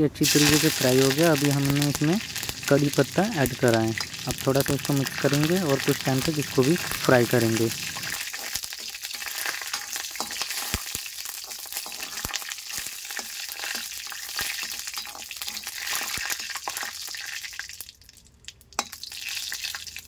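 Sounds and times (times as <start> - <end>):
leaves sizzling in hot oil: 0.0 - 20.0
metal spatula scraping pan: 7.7 - 16.8.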